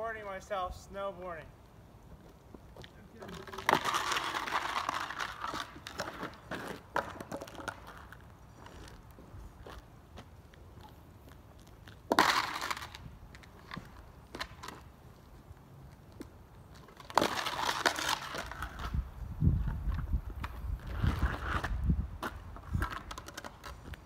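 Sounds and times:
boots scraping over ice: 2.6 - 10.3, 20.7 - 24.0.

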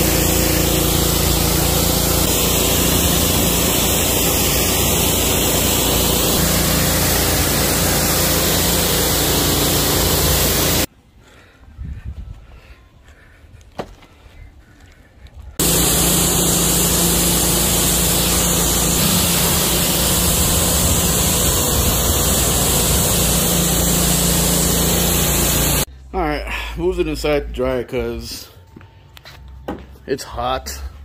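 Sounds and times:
brush scrubbing soapy roof: 0.0 - 10.9, 15.6 - 25.9
pressure washer running: 0.0 - 10.9, 15.6 - 25.9
water jet spraying car panels: 0.0 - 10.9, 15.6 - 25.9.

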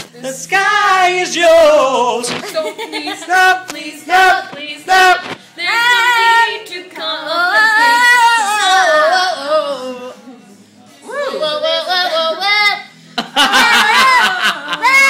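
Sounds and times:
woman singing: 2.2 - 15.0.

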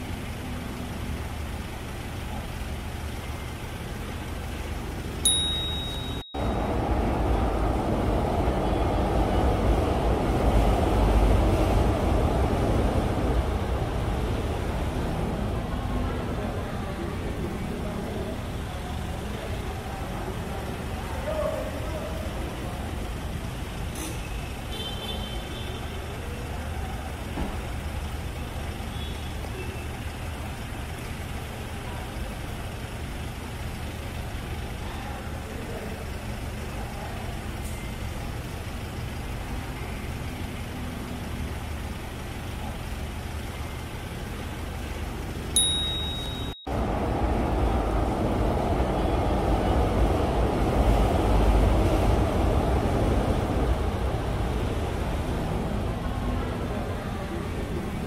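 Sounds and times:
street traffic rumble: 0.0 - 58.0
short high beep: 5.3 - 6.6, 45.6 - 46.7.

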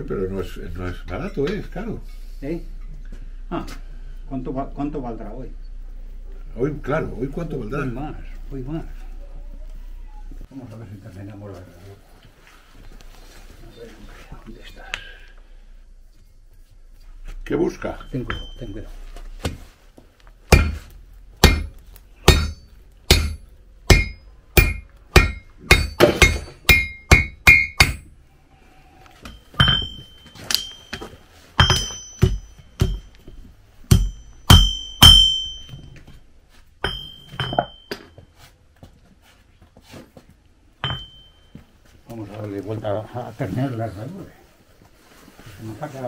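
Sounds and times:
hammer striking iron on anvil: 18.0 - 18.8, 20.5 - 28.1, 29.2 - 33.2, 33.9 - 36.0, 36.8 - 38.2, 40.8 - 41.4.

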